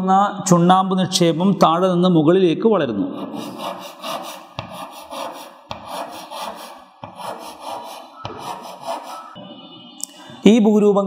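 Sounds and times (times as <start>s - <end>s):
chalk scraping on chalkboard: 3.1s - 9.4s
chalk tapping on board: 3.2s - 9.4s.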